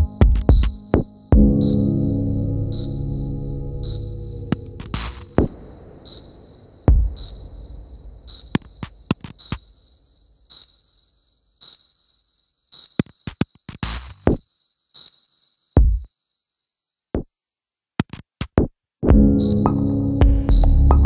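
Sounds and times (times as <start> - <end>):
minimal electronic music: 0.0 - 6.3, 19.1 - 21.0.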